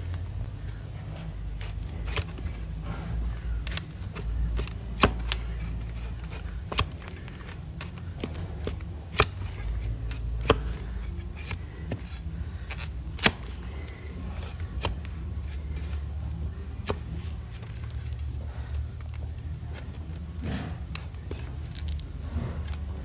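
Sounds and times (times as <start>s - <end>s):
steady low rumble: 0.0s - 23.0s
blade scraping hoof: 0.6s - 23.0s
sharp cutting clicks: 3.6s - 5.5s, 12.7s - 15.1s.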